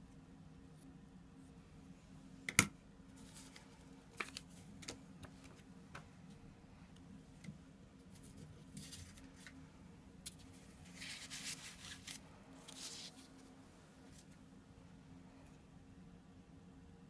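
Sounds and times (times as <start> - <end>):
paper and plastic crinkling: 3.2 - 5.6, 10.3 - 13.5.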